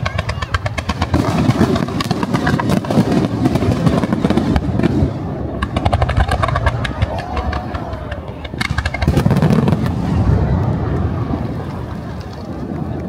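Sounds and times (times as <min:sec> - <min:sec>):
fireworks popping and banging: 0:00.0 - 0:13.0
low rumble: 0:04.4 - 0:13.0.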